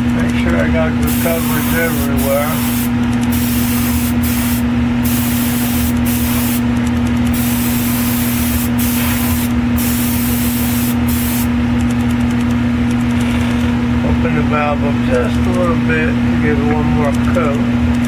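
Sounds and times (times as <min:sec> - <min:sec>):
steady low hum: 0:00.0 - 0:18.0
airbrush hissing: 0:01.1 - 0:06.6, 0:07.3 - 0:11.5.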